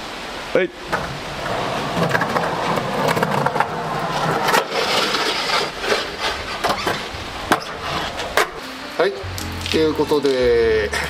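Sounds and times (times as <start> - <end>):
skateboard wheels rolling on concrete: 0.0 - 11.0
skateboard clacks: 0.9 - 8.6
skateboard deck scraping curb: 0.9 - 8.6.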